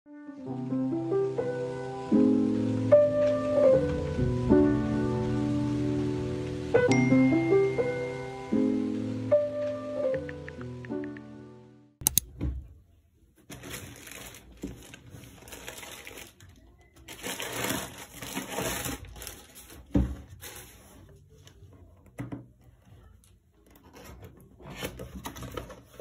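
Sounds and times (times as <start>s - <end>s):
plastic bag rustling: 13.4s - 21.6s, 23.9s - 26.0s.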